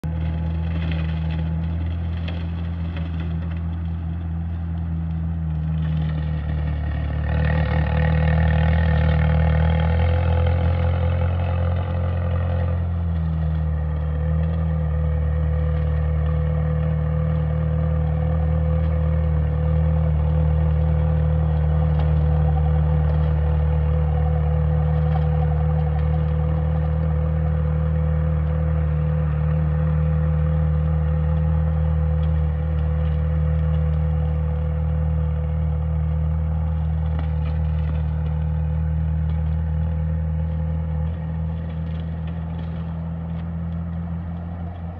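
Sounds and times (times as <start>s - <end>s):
tractor engine running: 0.0s - 44.9s.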